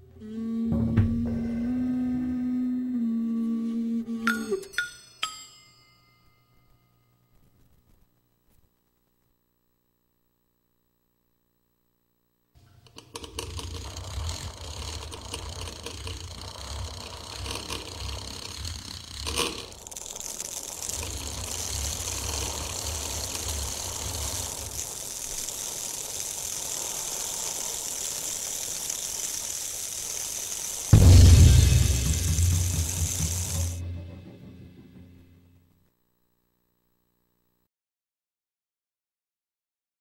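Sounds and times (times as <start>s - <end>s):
hiss: 13.0s - 33.8s
low engine-like noise: 13.0s - 35.6s.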